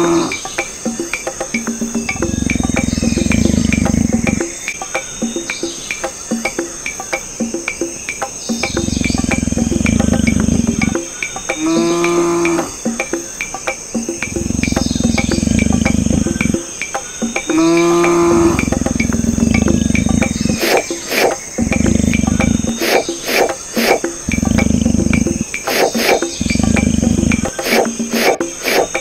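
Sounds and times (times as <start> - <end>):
crickets chirping: 0.0 - 29.0
low noise: 0.0 - 29.0
regular ticking: 0.0 - 29.0
cow moo: 11.6 - 12.8, 17.6 - 20.6
steady high trill: 17.6 - 29.0.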